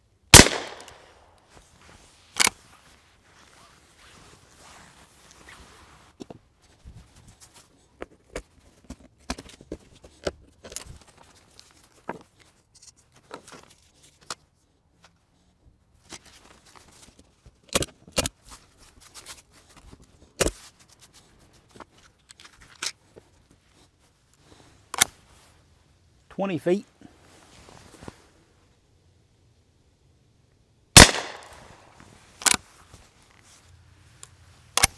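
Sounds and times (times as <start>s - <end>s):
paper crinkling and rustling: 1.5s - 15.1s.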